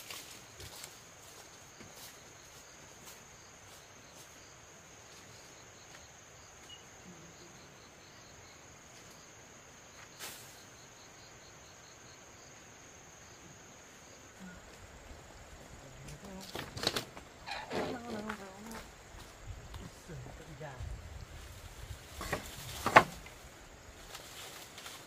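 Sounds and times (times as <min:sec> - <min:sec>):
insect drone: 0:00.0 - 0:25.0.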